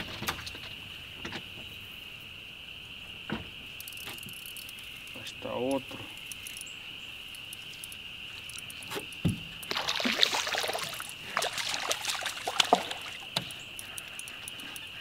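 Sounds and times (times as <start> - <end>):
high drone of insects: 0.0 - 15.0
water splashing and sloshing: 7.8 - 14.7.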